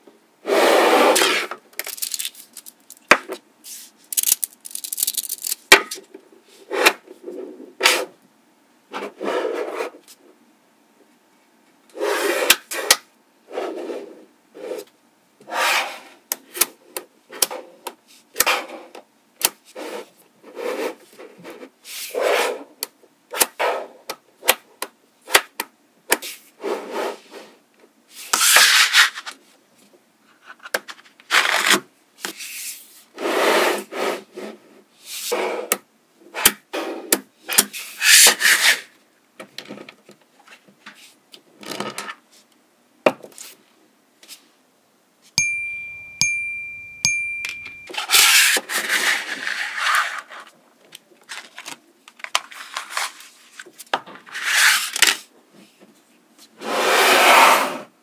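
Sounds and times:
magnetic balls clattering: 4.1s - 5.7s, 45.4s - 47.9s.

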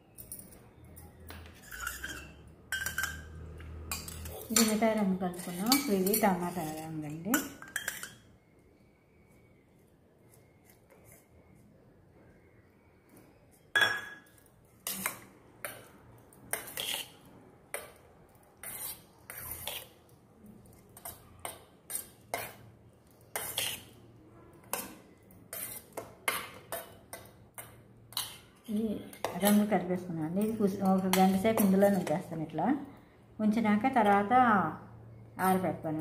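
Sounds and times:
spoon clinking against steel bowl: 1.7s - 8.3s, 13.7s - 15.9s, 30.4s - 32.3s.

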